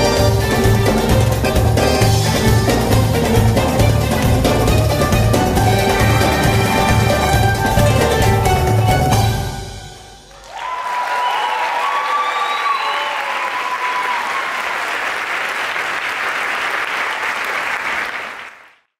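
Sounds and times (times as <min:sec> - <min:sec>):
music: 0:00.0 - 0:10.3
audience applause: 0:04.1 - 0:09.1, 0:10.3 - 0:18.9
audience cheering: 0:05.5 - 0:09.2, 0:10.2 - 0:18.4.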